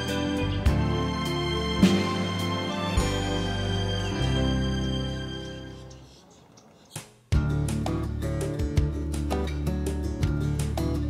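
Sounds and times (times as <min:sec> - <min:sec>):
slow sustained music chords: 0:00.0 - 0:06.0.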